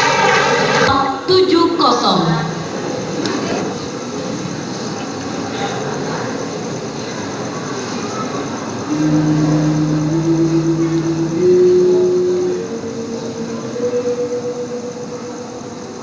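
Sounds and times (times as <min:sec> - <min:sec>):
old recording hiss: 0:00.0 - 0:16.0
man chanting long notes: 0:08.9 - 0:16.0.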